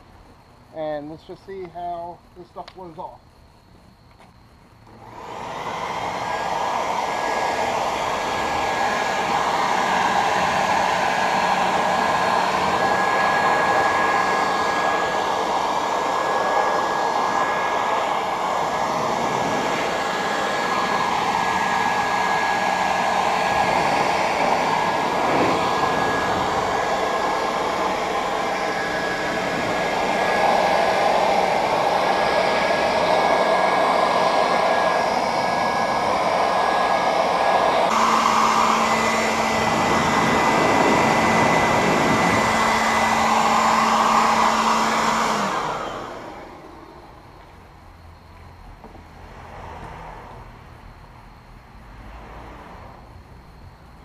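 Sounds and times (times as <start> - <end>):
leaf blower running: 4.8 - 47.7.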